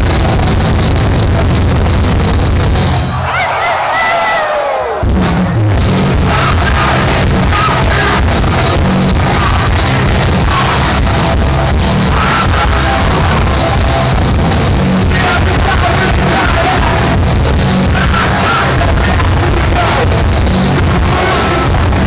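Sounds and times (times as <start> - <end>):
punk band playing live: 0.0 - 22.0.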